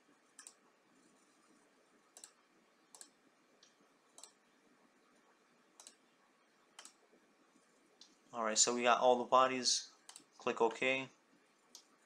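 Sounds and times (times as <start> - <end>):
faint computer mouse clicks: 0.4 - 0.6, 2.2 - 4.4, 5.8 - 6.0, 6.8 - 7.0, 10.1 - 10.3.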